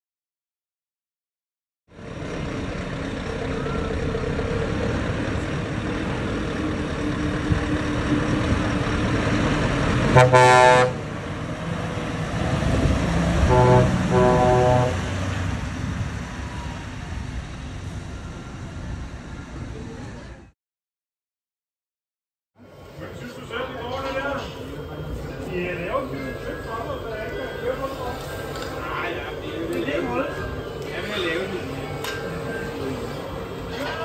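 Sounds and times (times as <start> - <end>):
diesel engine drone: 1.9 - 20.5, 22.6 - 34.0
air horn blast: 10.1 - 11.0, 13.4 - 15.1
short horn toots: 10.1 - 11.0, 13.5 - 15.1.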